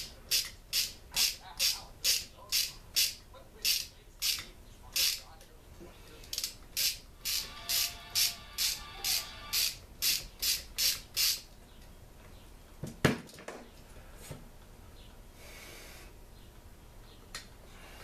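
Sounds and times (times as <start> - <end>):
ratchet wrench clicking: 0.3 - 5.2, 6.3 - 11.4.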